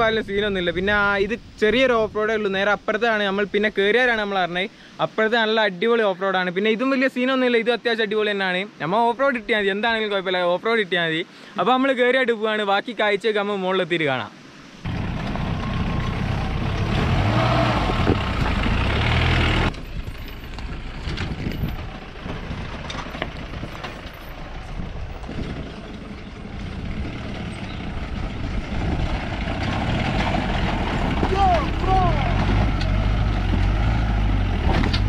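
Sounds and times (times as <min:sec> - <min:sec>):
engine running under load: 0:14.8 - 0:35.0.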